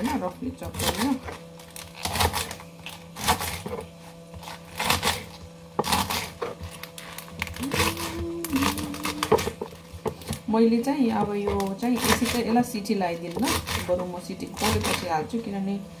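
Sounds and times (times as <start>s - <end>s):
knife chopping greens on board: 2.0s - 2.6s, 3.2s - 6.8s, 7.7s - 10.4s, 11.0s - 12.6s, 13.3s - 15.1s.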